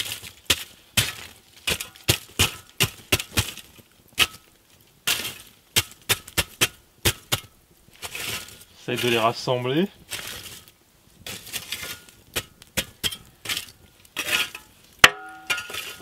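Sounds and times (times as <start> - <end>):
glassy clinks of charcoal: 14.5 - 16.0
poker knocking embers: 14.5 - 16.0.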